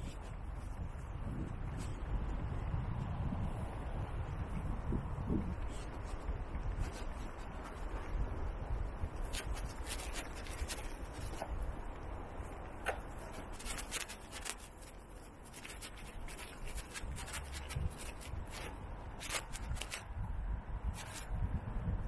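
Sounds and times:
handling and rubbing noise: 0.0s - 2.3s, 4.5s - 20.1s, 21.0s - 21.4s
low wind rumble: 0.0s - 22.0s.

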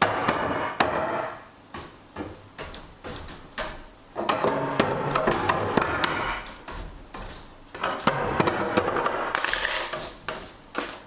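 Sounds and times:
footsteps on wooden stairs: 0.8s - 9.2s.

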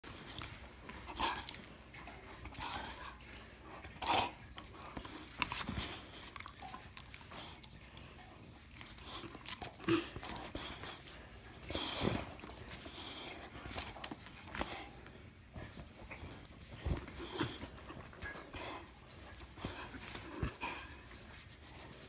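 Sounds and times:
dog breathing: 7.2s - 22.0s.

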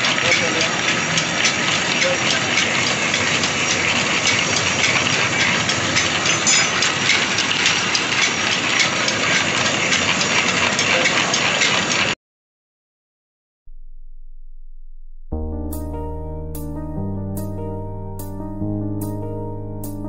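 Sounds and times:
drill press boring steel: 0.0s - 12.2s.

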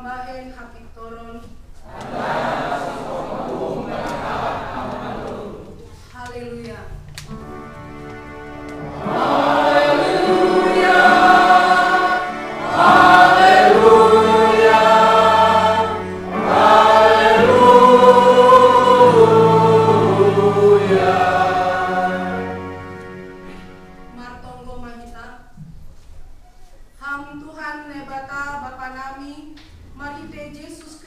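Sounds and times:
congregation singing a hymn: 1.8s - 5.9s, 7.4s - 24.2s
organ: 7.3s - 24.1s.

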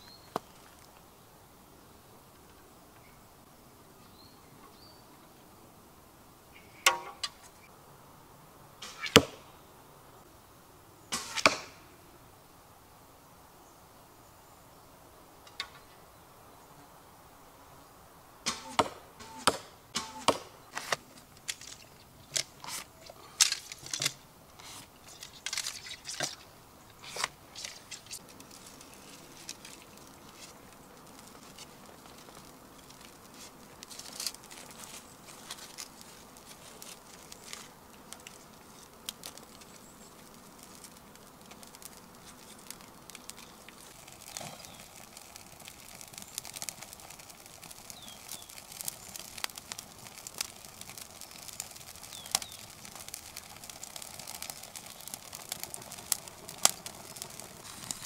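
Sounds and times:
arrow striking target knock: 8.8s - 9.4s, 11.1s - 11.8s, 18.5s - 20.5s.

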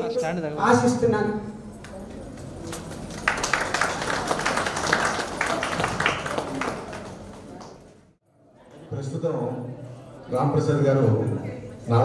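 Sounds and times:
audience applauding: 2.5s - 8.0s.

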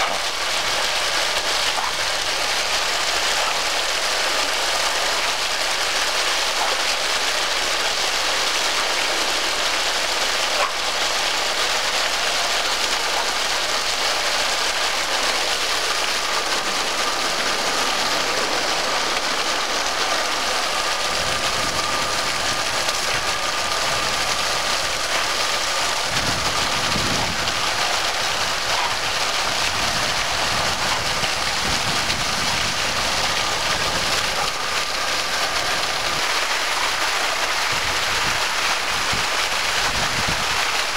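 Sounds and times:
water gushing onto pavement: 0.0s - 40.9s.

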